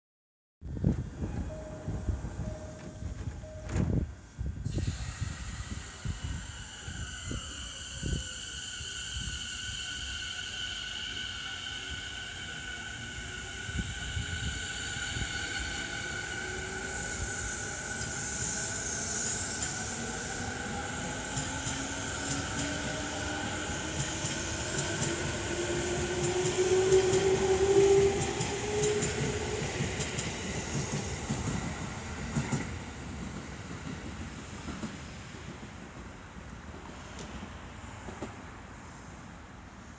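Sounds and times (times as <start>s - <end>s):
train motor whine braking: 1.9s - 32.8s.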